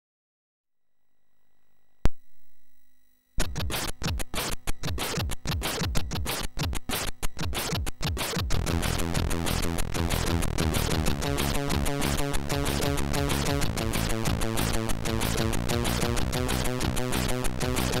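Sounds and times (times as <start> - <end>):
sharp click: 3.4 - 8.5
fast electronic chiptune music: 3.4 - 18.0.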